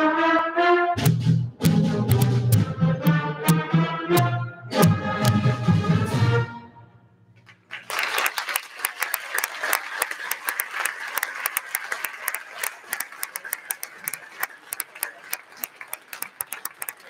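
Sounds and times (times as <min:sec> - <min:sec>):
audience applauding: 0:07.4 - 0:17.0.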